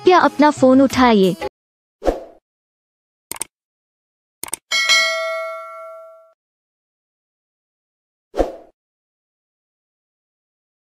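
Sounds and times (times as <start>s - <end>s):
double mouse click: 3.3s - 3.5s
notification bell chime: 4.7s - 6.4s.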